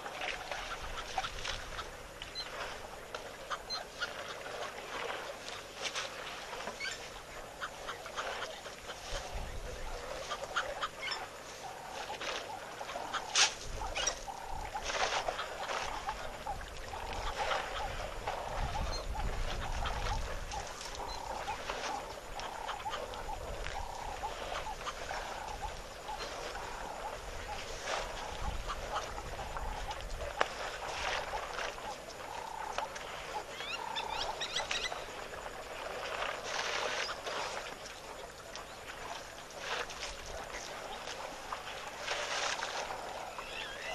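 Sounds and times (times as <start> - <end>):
waterbird calls and chirps: 0.0 - 43.9
birds calling: 31.8 - 35.2, 43.1 - 43.9.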